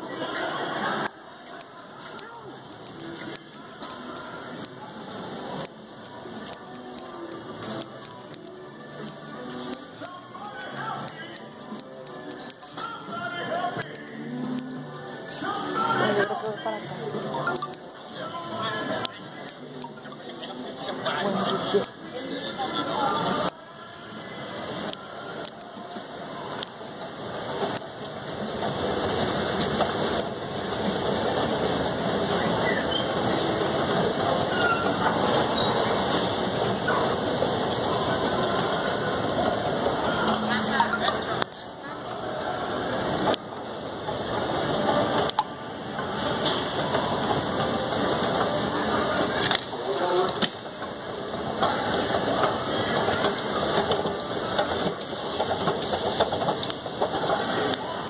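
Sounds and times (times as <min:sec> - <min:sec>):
brief squeaks: 0:34.5 - 0:35.9.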